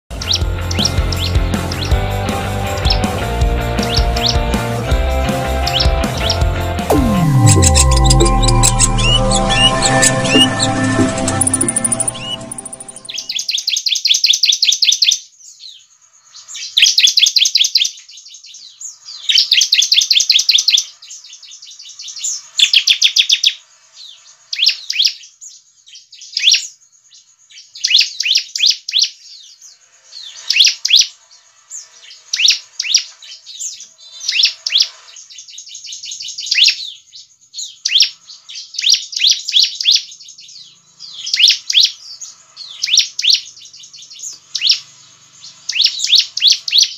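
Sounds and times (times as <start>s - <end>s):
sharp bird calls: 31.8s - 46.9s.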